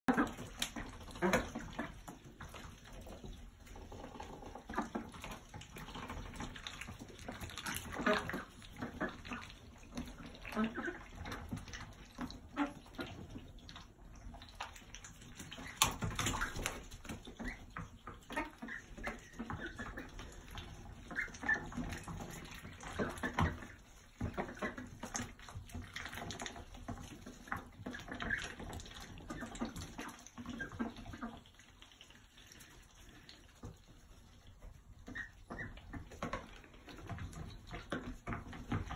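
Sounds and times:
ducks quacking softly: 0:00.1 - 0:13.6, 0:14.2 - 0:34.1
rustling and pecking in wood shavings: 0:00.1 - 0:38.9.

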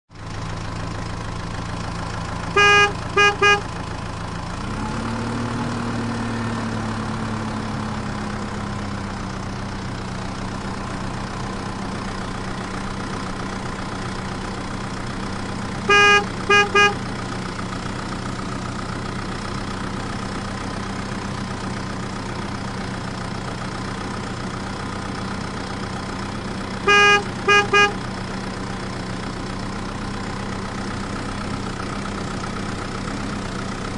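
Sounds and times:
truck horn honking: 0:02.5 - 0:03.8, 0:15.7 - 0:17.1, 0:26.8 - 0:28.1
truck engine revving: 0:04.5 - 0:08.4, 0:14.9 - 0:17.0.

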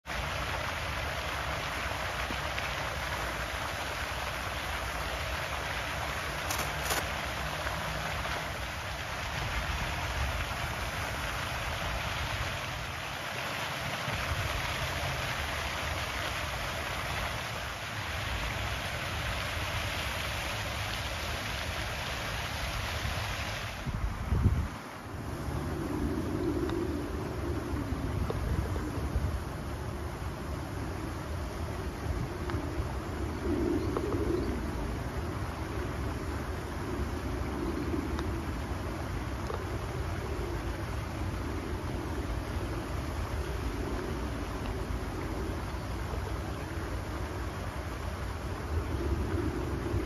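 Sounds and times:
fountain spray hissing on water: 0:00.0 - 0:50.0
wind rumble on microphone: 0:00.0 - 0:50.0.

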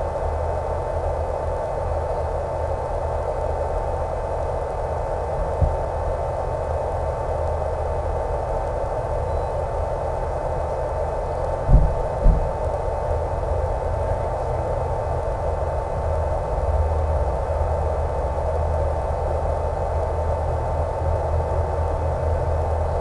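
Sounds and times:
wind buffeting microphone: 0:11.6 - 0:12.8.

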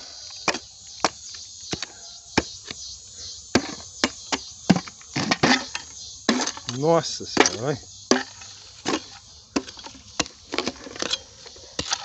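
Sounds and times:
hand hoe chopping into soil: 0:03.5 - 0:12.0.

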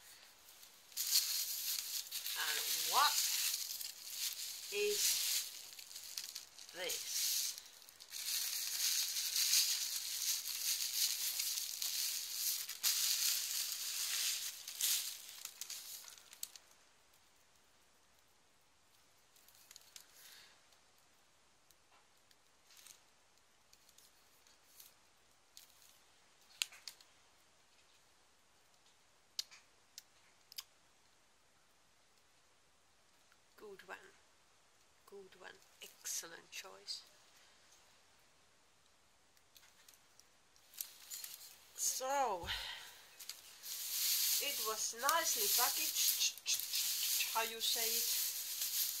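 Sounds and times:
bubble wrap rustling and crinkling: 0:00.0 - 0:16.8, 0:19.2 - 0:20.5, 0:22.6 - 0:27.1, 0:39.4 - 0:49.0
sharp crackle of bubble wrap: 0:00.0 - 0:16.8, 0:19.3 - 0:20.5, 0:22.6 - 0:23.1, 0:23.7 - 0:27.0, 0:39.4 - 0:49.0.

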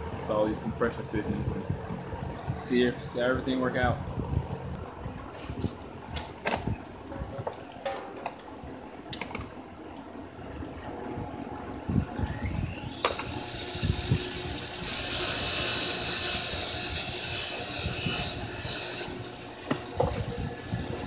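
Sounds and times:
bench grinder wire wheel whine: 0:10.5 - 0:21.0.

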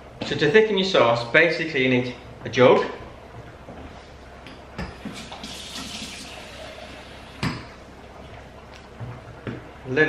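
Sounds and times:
tap water running into jug: 0:04.9 - 0:07.8.

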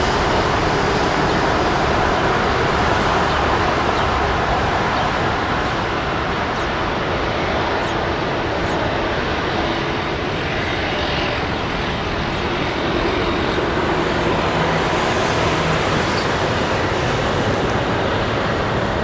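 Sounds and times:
jet engines roaring: 0:00.0 - 0:19.0.

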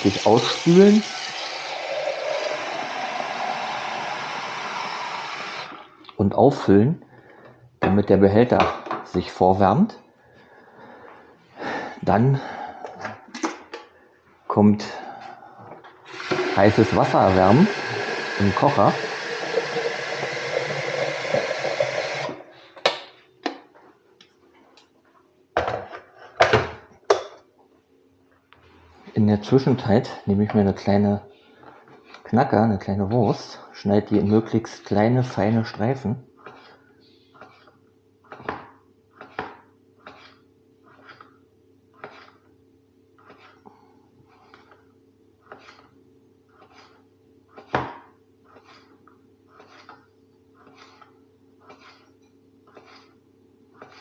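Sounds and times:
tap water running into kettle: 0:00.0 - 0:05.8, 0:16.1 - 0:22.4.

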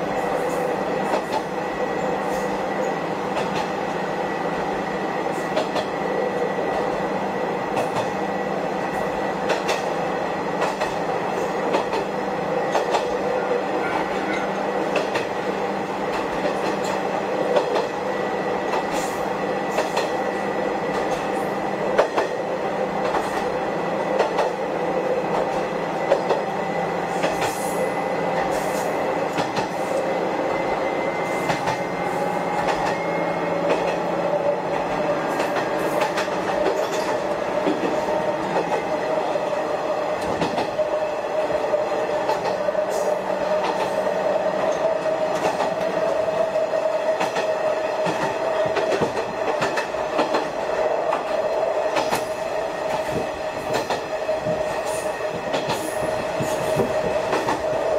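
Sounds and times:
railcar running rumble: 0:00.0 - 0:57.9
wheels clicking over rail joints: 0:34.7 - 0:38.9.

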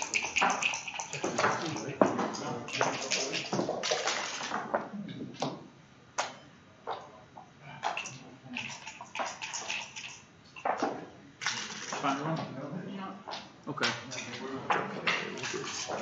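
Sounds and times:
dice rattling in a cup: 0:00.0 - 0:04.6, 0:07.9 - 0:10.7, 0:11.4 - 0:12.2, 0:15.4 - 0:16.0
dice clacking on a board: 0:00.0 - 0:04.8.

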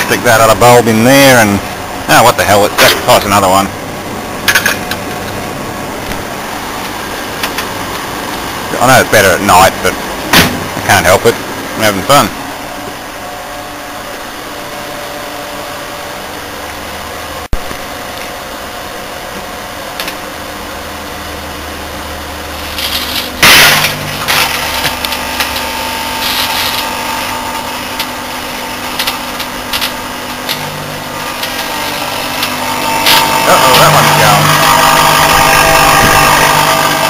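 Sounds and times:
high steady whine: 0:00.0 - 0:37.0
steady mains hum: 0:00.0 - 0:37.0.

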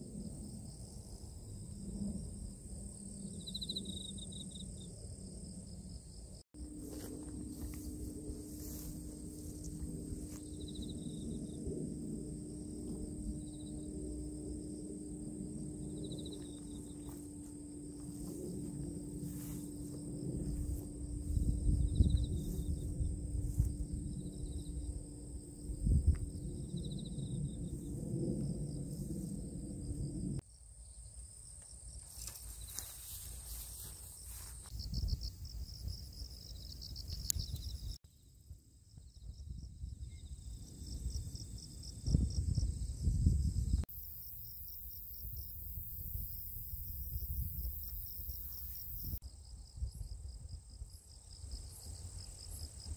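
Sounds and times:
crickets chirring: 0:00.0 - 0:52.9
low rumbling noise: 0:06.6 - 0:30.4.

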